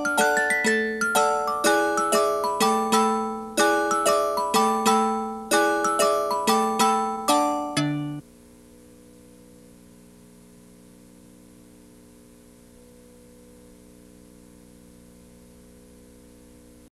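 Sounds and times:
glockenspiel-like chime: 0.0 - 8.2
low electrical hum: 0.0 - 16.9.

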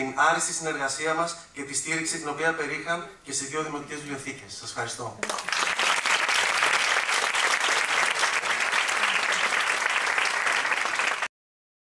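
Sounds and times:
audience applauding: 5.2 - 11.3.

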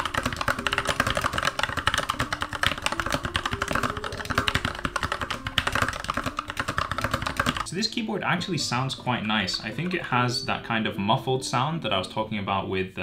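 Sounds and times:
fast typing on mechanical keyboard: 0.0 - 7.7.

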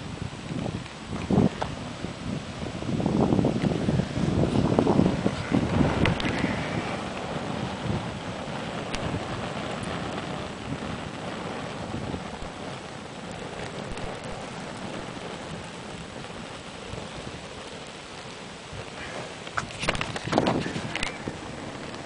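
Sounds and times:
fire rushing and crackling: 0.0 - 22.0.

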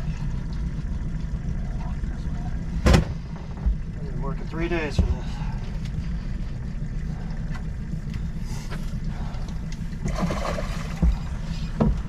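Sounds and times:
steady low hum: 0.0 - 12.0
thump against boat: 2.8 - 3.8, 10.9 - 12.0
fish splashing at surface: 10.0 - 11.2.

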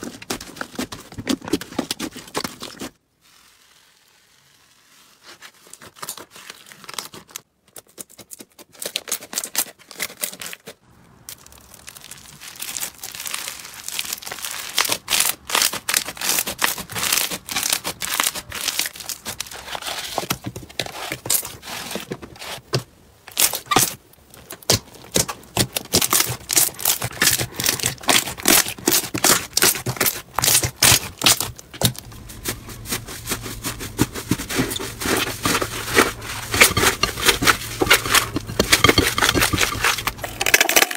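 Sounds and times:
sticky slime crackling: 11.3 - 19.8, 23.3 - 40.5.

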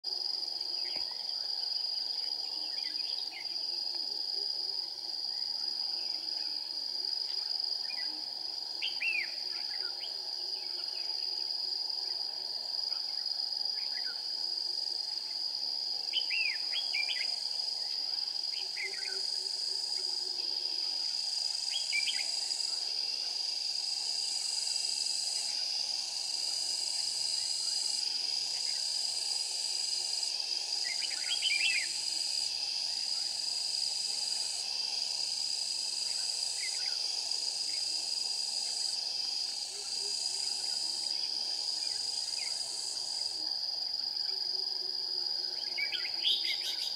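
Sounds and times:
bird chirping song: 45.7 - 46.9.

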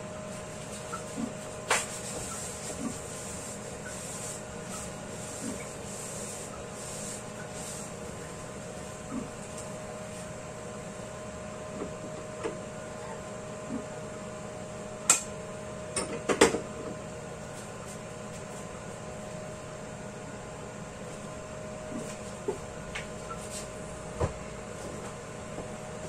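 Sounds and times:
steady hum: 0.0 - 26.0
paper towel rubbing a wok: 0.6 - 9.0.

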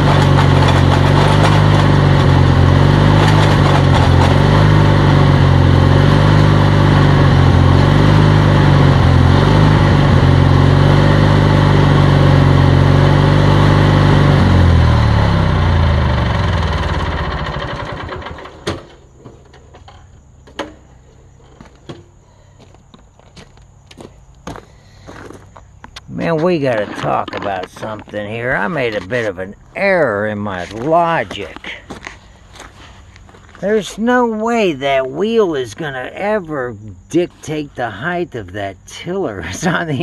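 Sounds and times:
sharp clicks and knocks: 0.0 - 2.4, 3.1 - 4.5
lawn tractor engine running: 0.0 - 22.5, 24.7 - 40.0.

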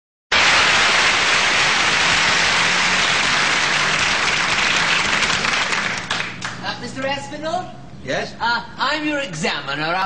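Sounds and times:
audience applauding: 0.3 - 6.6.

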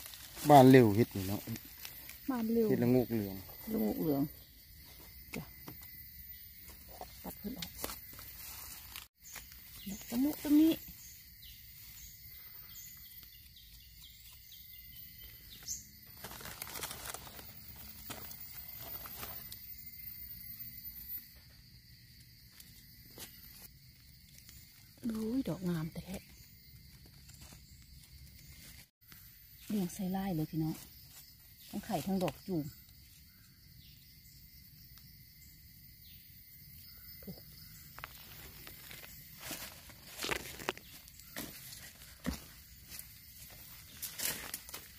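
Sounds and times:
leaves and twigs rustling: 0.0 - 21.2, 22.3 - 33.5, 37.6 - 44.9
high-pitched insect chorus: 0.0 - 44.9
faint bird chirps: 9.2 - 16.2.

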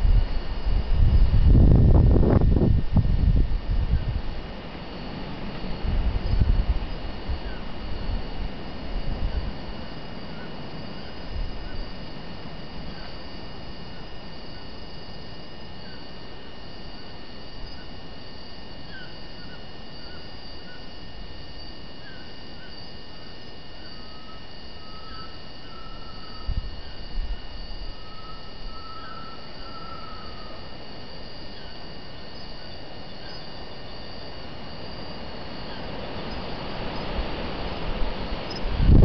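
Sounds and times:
insects trilling: 0.0 - 39.0
bird whistles: 28.0 - 30.4.

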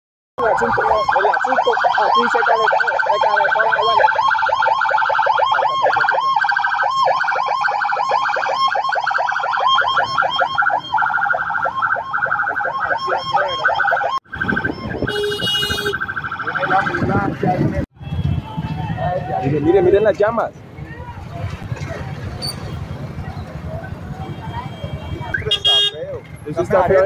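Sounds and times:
ambulance siren warbling: 0.4 - 17.7.

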